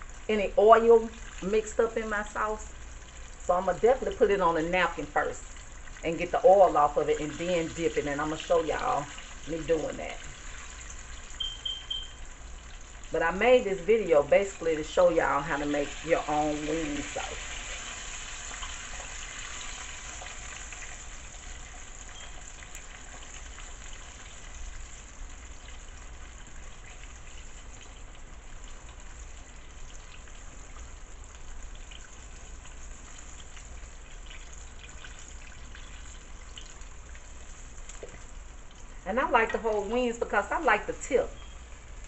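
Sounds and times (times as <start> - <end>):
deep-frying sizzle: 0.0 - 42.0
oil crackles: 14.5 - 42.0.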